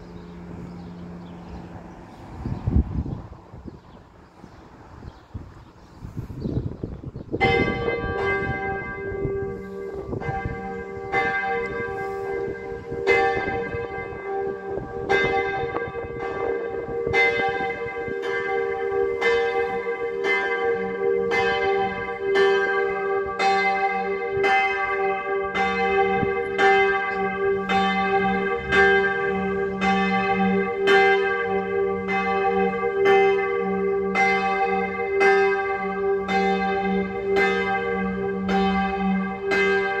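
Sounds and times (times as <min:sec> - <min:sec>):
church bell tolling: 0:07.4 - 0:40.0.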